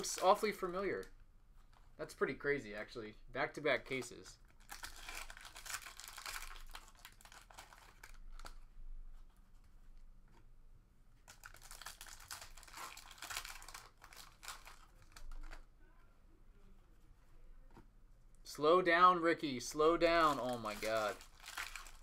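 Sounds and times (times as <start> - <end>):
foil wrappers tearing and crinkling: 4.6 - 8.6, 11.3 - 15.6, 20.2 - 22.0.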